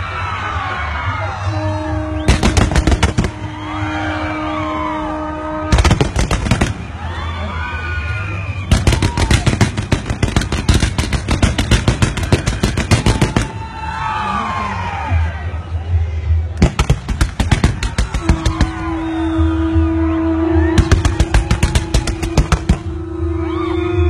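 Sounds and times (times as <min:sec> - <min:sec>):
fireworks cracking bangs: 0:02.3 - 0:03.8, 0:05.7 - 0:07.0, 0:08.7 - 0:13.7, 0:16.6 - 0:18.9, 0:20.8 - 0:23.0.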